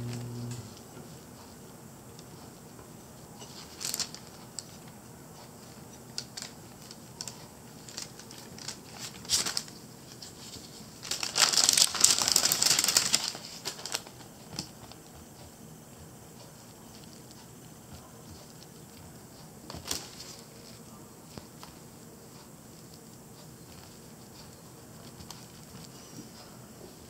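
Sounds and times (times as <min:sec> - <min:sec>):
paper crinkling and rustling: 0:03.4 - 0:15.2, 0:16.6 - 0:22.0, 0:22.8 - 0:26.0.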